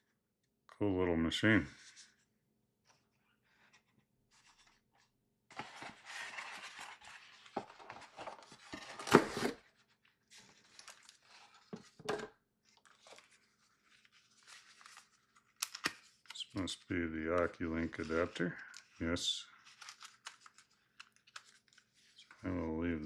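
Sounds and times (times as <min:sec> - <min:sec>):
cardboard rustling and scraping: 0:05.5 - 0:12.0.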